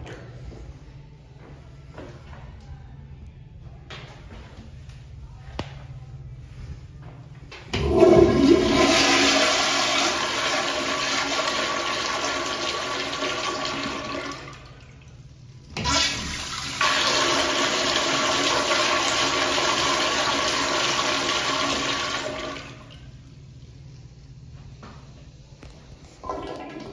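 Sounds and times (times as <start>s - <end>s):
toilet flushing: 7.7s - 23.2s, 26.2s - 26.9s.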